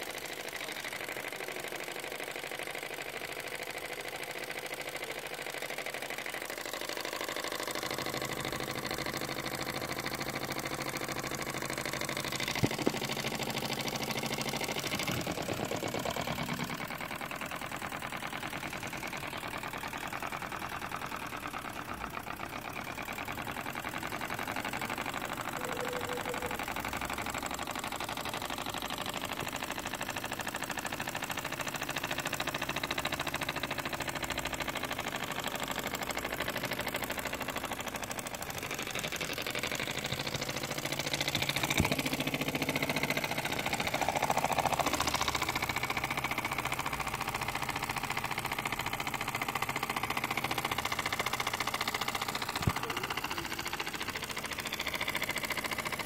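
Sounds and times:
toy steam engine running: 0:00.0 - 0:56.0.

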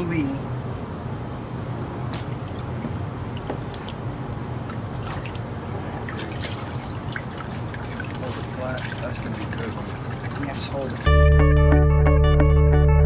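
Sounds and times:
water dripping into tub: 0:02.2 - 0:11.1
paper pulp sloshing: 0:06.0 - 0:11.1.

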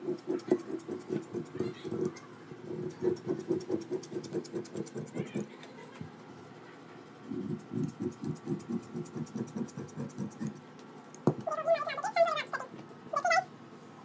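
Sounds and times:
scissors snipping fabric: 0:00.0 - 0:05.5, 0:07.3 - 0:11.2.

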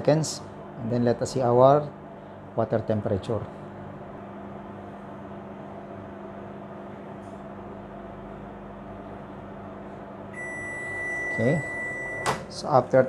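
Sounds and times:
microwave oven humming: 0:00.0 - 0:13.0
long high beep: 0:10.4 - 0:12.4.

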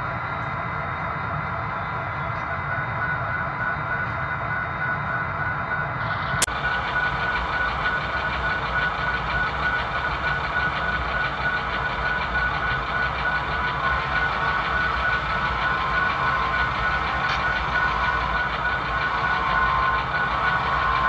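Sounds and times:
high whine: 0:01.2 - 0:21.0
diesel engine idling through speaker: 0:06.1 - 0:21.0.

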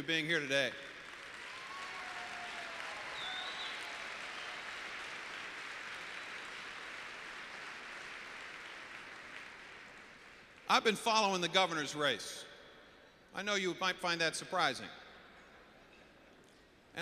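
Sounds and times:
audience applauding: 0:00.9 - 0:10.6.

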